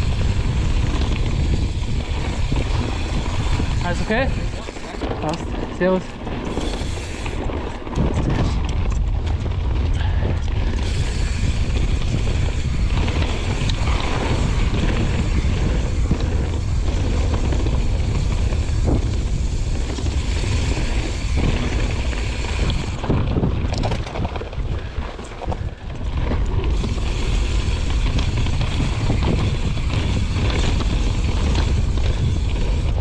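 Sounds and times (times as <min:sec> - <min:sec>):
bike clicks and rattles: 0:00.0 - 0:33.0
bike tyre noise: 0:00.0 - 0:33.0
wind rushing over microphone: 0:00.0 - 0:33.0.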